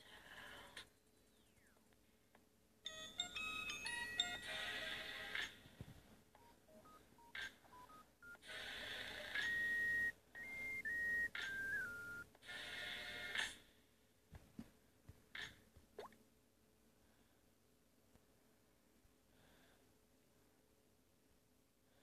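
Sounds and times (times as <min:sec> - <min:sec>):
electronic beep tune: 0:09.2 - 0:12.2.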